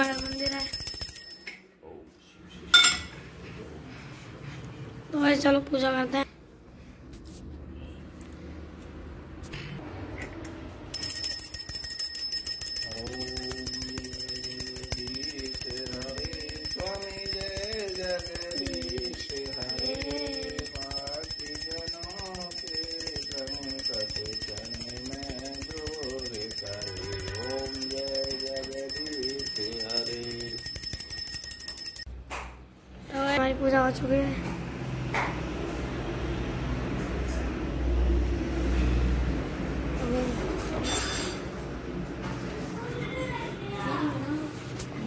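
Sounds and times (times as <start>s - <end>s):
ringing bells: 0.0s - 1.6s, 11.0s - 32.1s.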